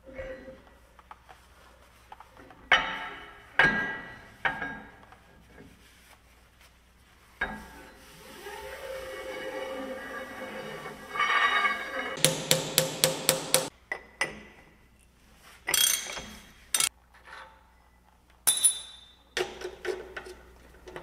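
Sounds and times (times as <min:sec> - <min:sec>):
sharp metallic clanks: 0:12.2 - 0:13.7.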